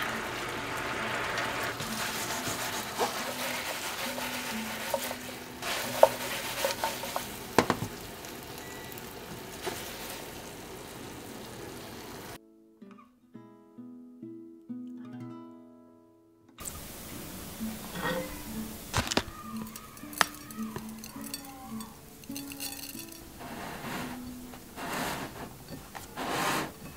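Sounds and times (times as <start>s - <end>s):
chicken sizzling in sauce: 0.0s - 12.4s, 16.6s - 26.9s
metal utensil knocking on pan: 6.0s - 8.0s.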